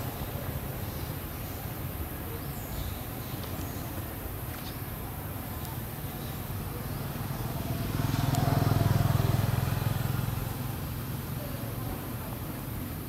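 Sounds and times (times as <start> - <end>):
passing vehicle engine drone: 6.8 - 11.4.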